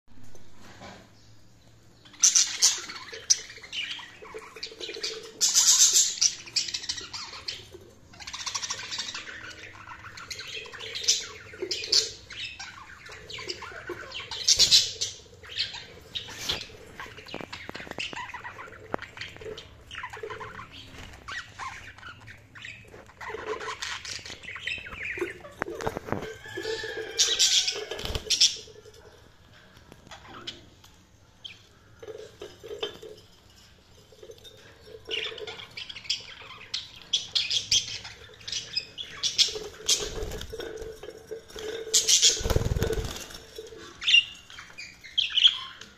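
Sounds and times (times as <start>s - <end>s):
budgerigars chirping and squawking: 2.0s - 29.1s, 34.5s - 45.9s
wings flapping: 39.8s - 43.6s.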